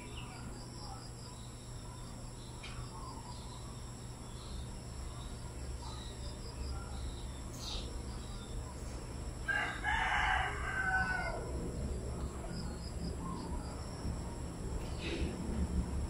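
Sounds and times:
steady low hum: 0.0 - 16.0
rooster crowing: 9.4 - 11.8.

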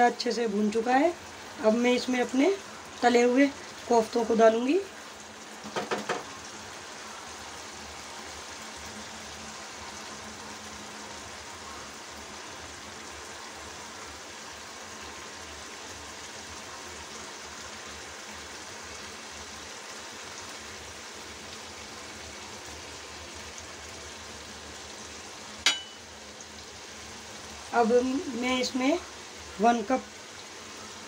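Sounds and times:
gravy sizzling in a pan: 0.0 - 31.0
sharp clink: 25.7 - 26.0.

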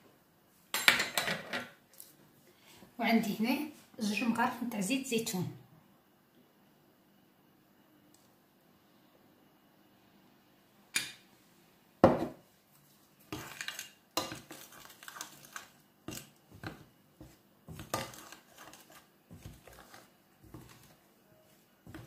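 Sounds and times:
metal spoon scraping glass bowl: 17.7 - 19.0.

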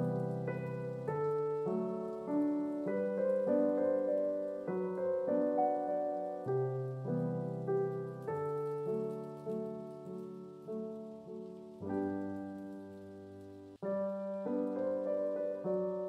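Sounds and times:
solo piano music: 0.0 - 16.0.

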